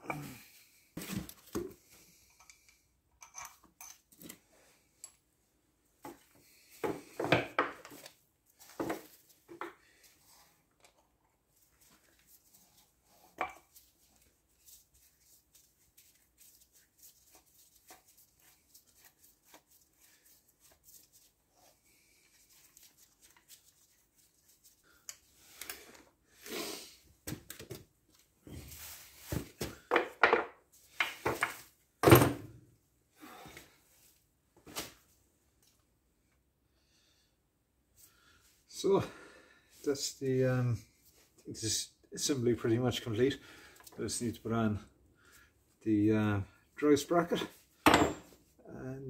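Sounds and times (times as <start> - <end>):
tools knocking on wooden bench: 47.9 - 48.2.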